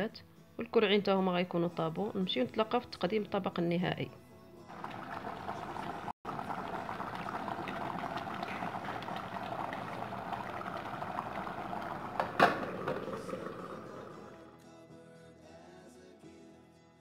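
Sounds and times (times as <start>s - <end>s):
pot bubbling and crackling: 4.7s - 14.5s.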